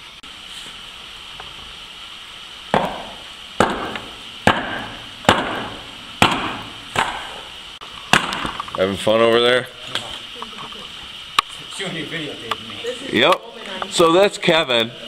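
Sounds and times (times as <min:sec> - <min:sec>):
hatchet chopping firewood: 0:02.7 - 0:07.5, 0:08.1 - 0:08.7.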